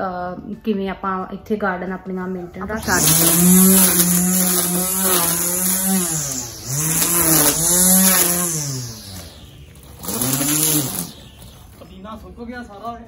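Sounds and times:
electric string trimmer whining: 2.6 - 12.3.

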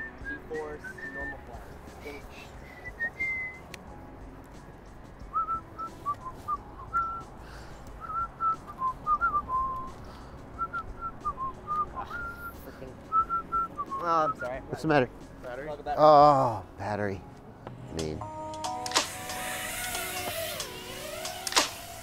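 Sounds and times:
person whistling a tune: 0.0 - 1.6, 2.6 - 3.7, 5.3 - 7.3, 8.0 - 10.0, 10.6 - 14.6.

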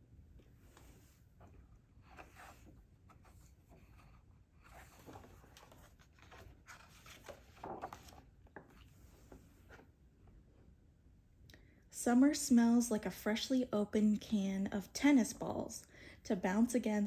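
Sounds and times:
book pages rustling: 0.6 - 9.9.

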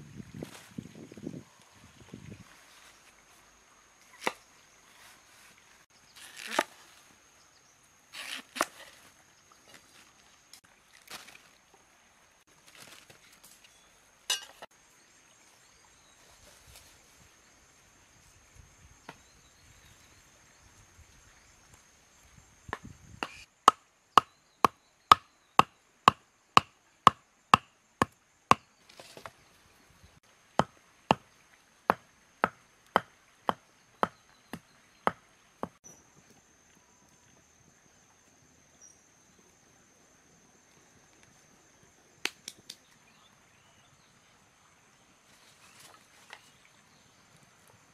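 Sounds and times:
wooden mallet striking stake: 22.7 - 29.3, 30.6 - 31.2, 31.9 - 35.8.

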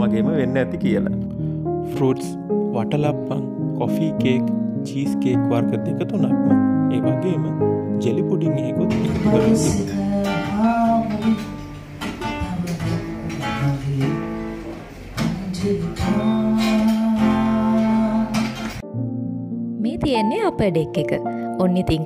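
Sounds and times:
acoustic guitar strummed: 8.8 - 19.0
person singing: 8.9 - 18.8.

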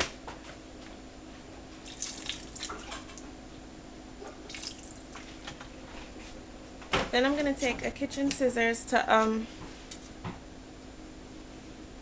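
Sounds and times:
faint steady hum: 0.0 - 12.0
vinegar splashing into water: 1.9 - 2.9, 4.5 - 5.0.

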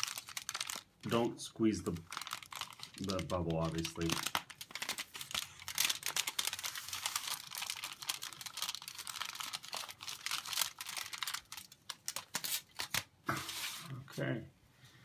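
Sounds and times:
foil crinkling and crackling: 0.0 - 13.8.

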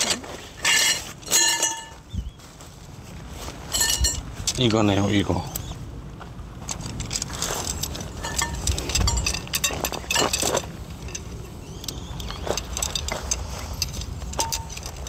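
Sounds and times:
tent poles clicking together: 0.0 - 2.0, 6.6 - 15.0
low steady rumble: 0.0 - 15.0.

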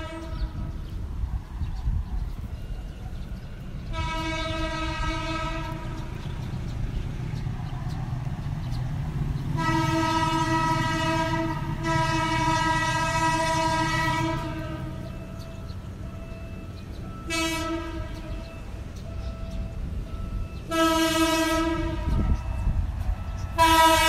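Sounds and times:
locomotive air horn blasts: 0.0 - 0.7, 3.9 - 6.2, 9.6 - 15.1, 17.2 - 18.5, 20.6 - 24.0
low engine rumble: 0.0 - 24.0.

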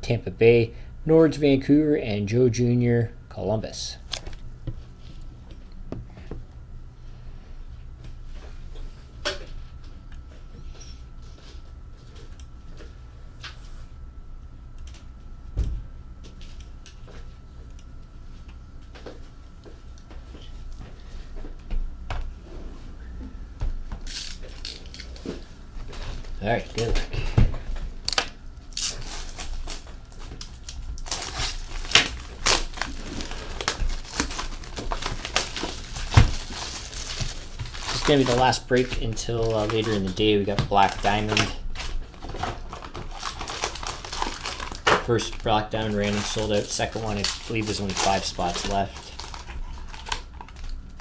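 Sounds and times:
steady low hum: 0.0 - 51.0
plastic wrap tearing and crumpling: 24.0 - 25.2, 28.1 - 40.2, 40.8 - 50.8.

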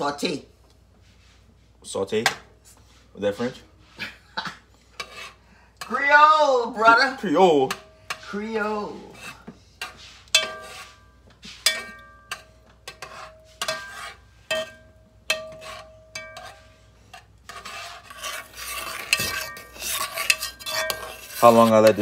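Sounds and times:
spoon scraping pot: 4.9 - 6.0, 7.1 - 22.0
spoon clinking against pot: 11.7 - 16.7, 18.2 - 21.4.

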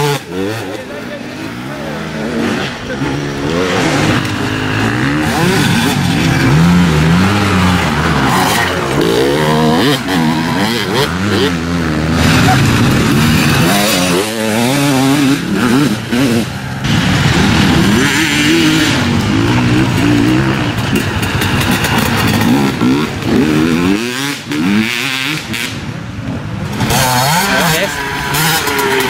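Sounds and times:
dirt bike engines revving: 0.0 - 29.0.

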